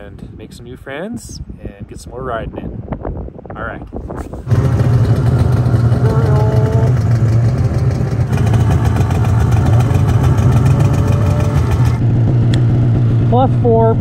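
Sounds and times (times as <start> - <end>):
snowmobile engine idling: 4.5 - 14.0.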